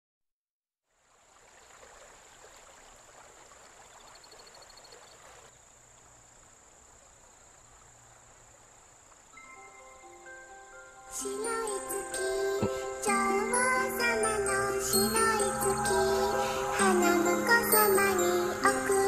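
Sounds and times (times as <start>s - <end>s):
running water: 0.8s - 9.6s
crickets chirping: 1.2s - 19.0s.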